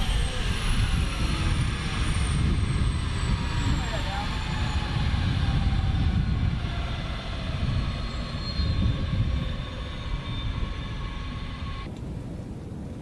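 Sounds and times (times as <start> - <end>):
helicopter turbine whine: 0.0 - 12.5.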